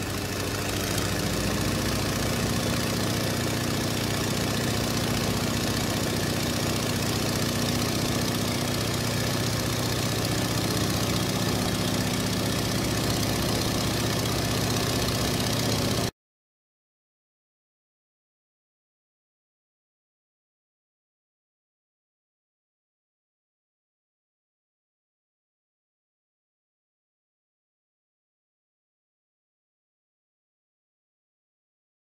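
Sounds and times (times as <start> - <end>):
propeller engine droning: 0.0 - 16.1.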